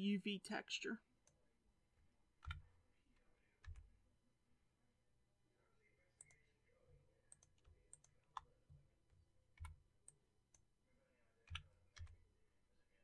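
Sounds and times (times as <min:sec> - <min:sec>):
keyboard and mouse clicks: 0:07.3 - 0:08.6, 0:09.5 - 0:10.6, 0:11.5 - 0:12.2.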